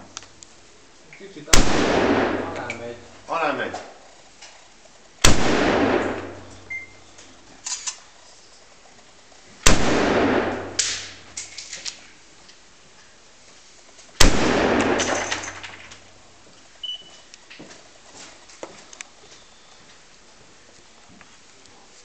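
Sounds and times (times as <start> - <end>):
rifle shots ringing out: 1.5 - 3.0, 5.2 - 6.7, 9.6 - 11.4, 14.2 - 15.9.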